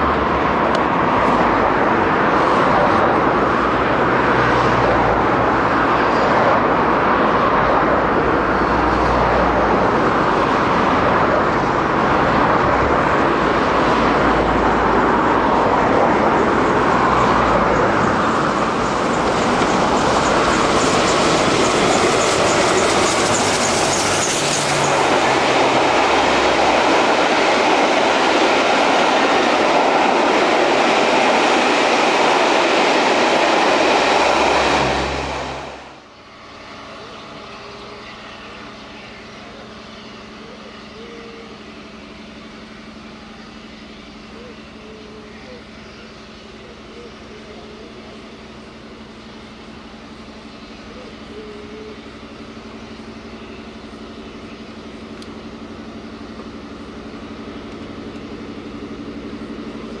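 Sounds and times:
steam locomotive heavy rumble: 0:00.0 - 1:00.0
train coaches rolling past: 0:00.0 - 1:00.0
high-pitched clatter of wheels on rail: 0:12.6 - 0:35.9.

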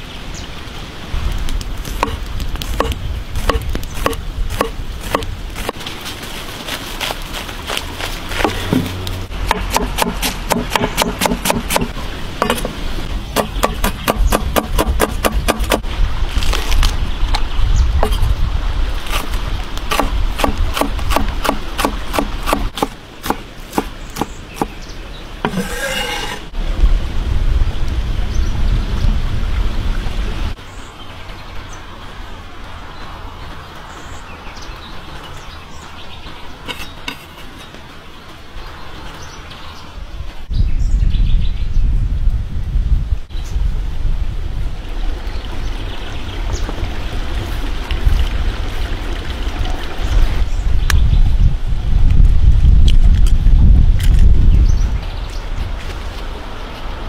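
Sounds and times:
cleaver chopping on wooden board: 0:01.8 - 0:05.8, 0:08.4 - 0:12.8, 0:13.4 - 0:15.8, 0:19.9 - 0:24.8, 0:25.4 - 0:26.4
knife slicing vegetables on board: 0:25.5 - 0:26.4.

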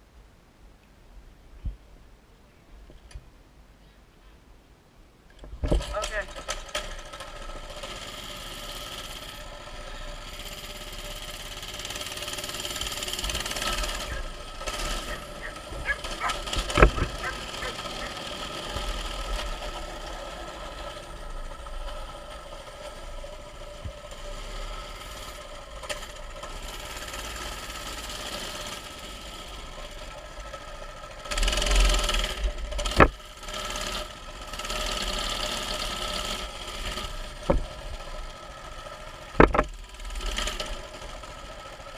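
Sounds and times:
mini bike engine running: 0:05.6 - 0:41.9
sharp knocks: 0:15.1 - 0:17.4, 0:39.4 - 0:39.7.

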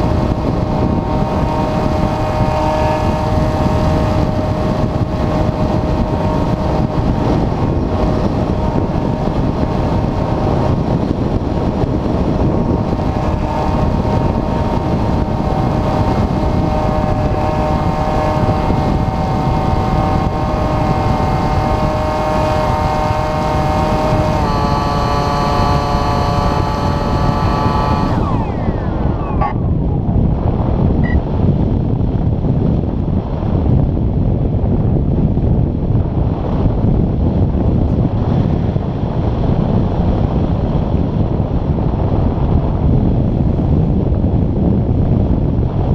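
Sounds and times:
electric motor and propeller whining: 0:00.0 - 0:32.3
wind rush: 0:00.0 - 0:45.9.

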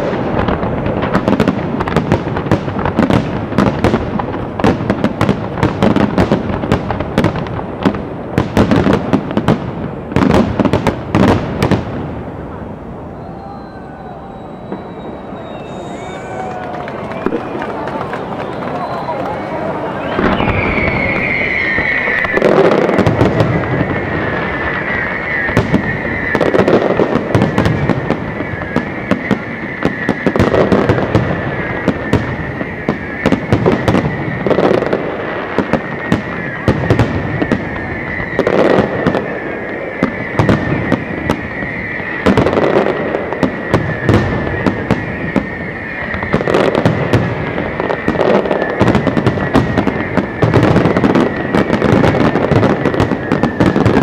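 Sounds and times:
fireworks bangs and crackles: 0:00.0 - 0:54.0
heavy fireworks booms: 0:00.0 - 0:54.0
high whistling tone: 0:13.0 - 0:34.6, 0:35.7 - 0:53.9.

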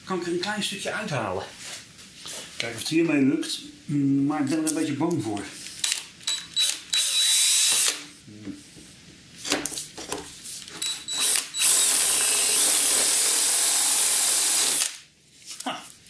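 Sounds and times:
cordless drill boring into wood: 0:06.6 - 0:08.0, 0:11.1 - 0:15.0.

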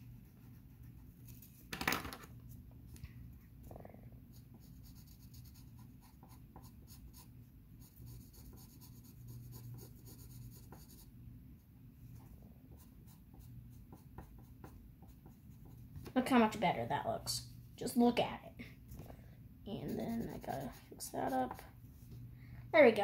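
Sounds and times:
pencil scratching on paper: 0:00.2 - 0:01.4, 0:04.3 - 0:11.1, 0:12.7 - 0:16.0, 0:19.7 - 0:21.6.

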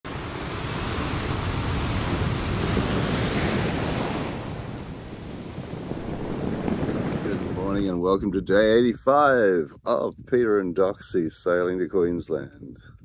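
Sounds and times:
waves breaking: 0:00.1 - 0:08.0.

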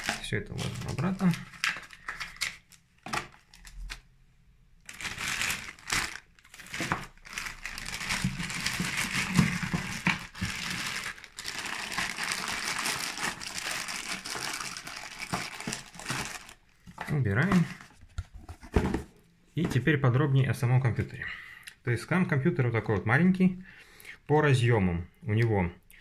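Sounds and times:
plastic film crinkling: 0:00.0 - 0:04.1, 0:04.8 - 0:16.8.

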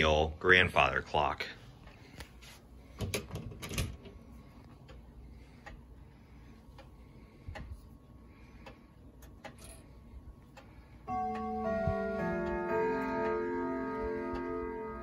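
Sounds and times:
clock movement clicking: 0:04.6 - 0:05.9, 0:06.5 - 0:15.0.

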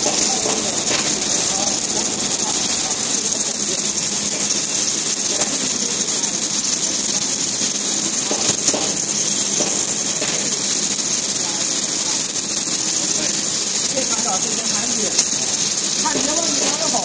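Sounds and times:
welding machine hissing: 0:00.0 - 0:17.0.

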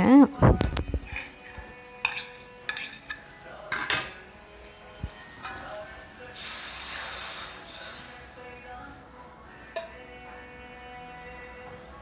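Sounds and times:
spatula clinking against wok: 0:01.1 - 0:04.2
onions sizzling in oil: 0:04.2 - 0:08.4.

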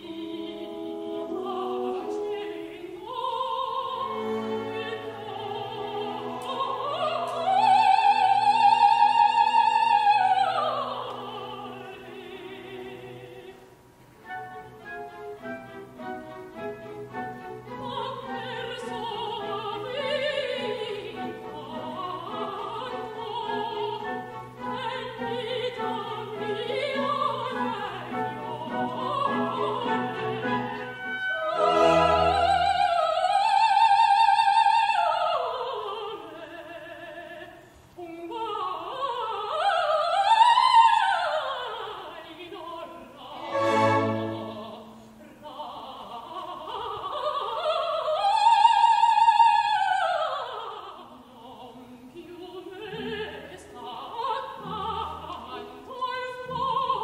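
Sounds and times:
woman singing opera: 0:00.0 - 0:57.0
orchestra playing: 0:23.6 - 0:33.2, 0:43.4 - 0:45.1.

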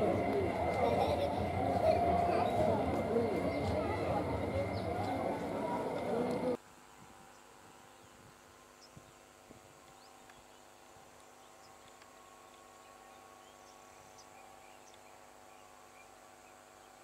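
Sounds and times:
steady low hum: 0:00.0 - 0:06.6.

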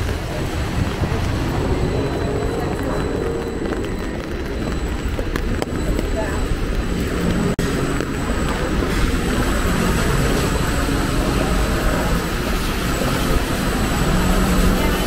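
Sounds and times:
city street traffic rumble: 0:00.0 - 0:15.0.

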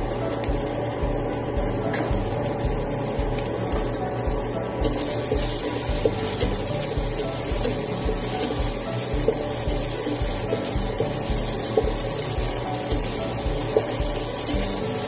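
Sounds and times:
background music with low beat: 0:00.0 - 0:15.0
meat sizzling in a frying pan: 0:00.0 - 0:15.0
spatula scraping a pan: 0:04.8 - 0:15.0.

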